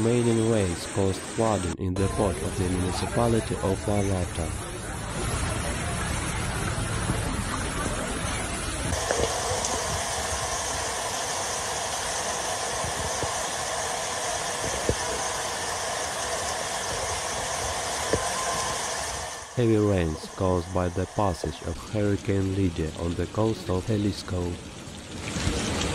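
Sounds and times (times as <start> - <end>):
floodwater rushing: 0.0 - 25.9.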